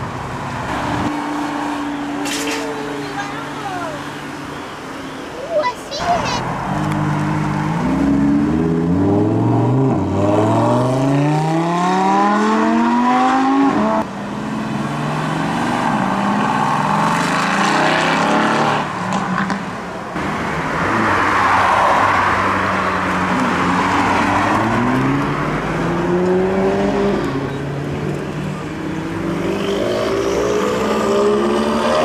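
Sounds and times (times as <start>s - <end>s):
sports car accelerating: 6.4s - 32.0s.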